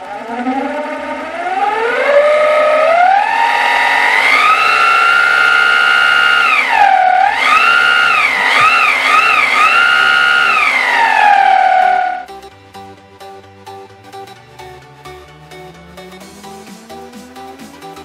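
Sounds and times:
drill motor whining: 0.0s - 12.3s.

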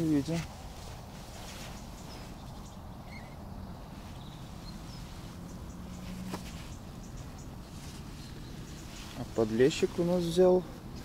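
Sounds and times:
faint bird chirps: 1.2s - 9.8s.

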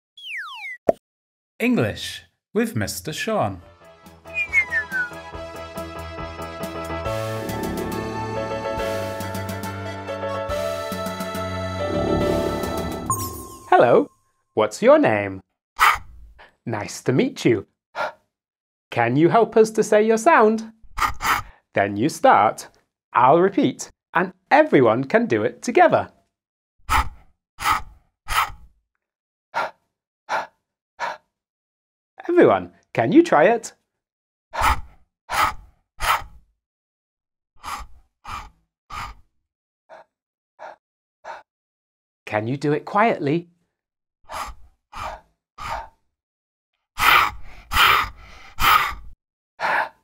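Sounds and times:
breathy h sounds: 37.6s - 39.2s, 44.3s - 46.0s.

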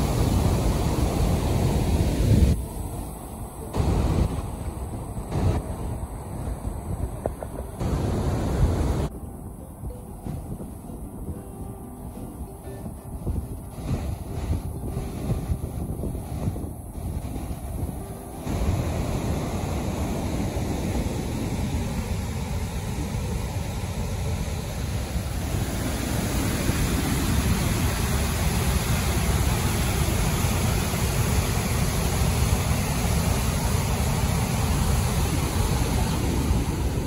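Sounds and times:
waterfall rushing: 0.0s - 7.0s, 7.8s - 9.1s, 12.1s - 37.0s.

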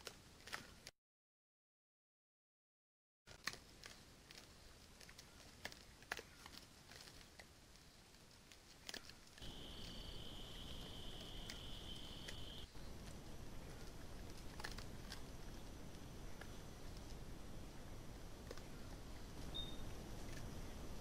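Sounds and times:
ticks and rustles in leaf litter: 3.3s - 21.0s
high-pitched insect buzz: 9.4s - 12.7s.

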